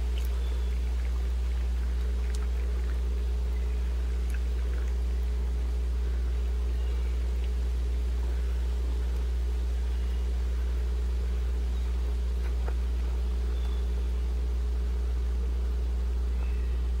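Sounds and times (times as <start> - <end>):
low machine hum: 0.0 - 17.0.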